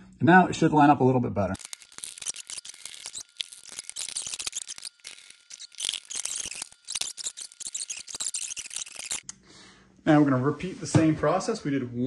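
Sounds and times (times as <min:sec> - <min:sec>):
plastic parts clicking and rattling: 0:01.6 - 0:09.2.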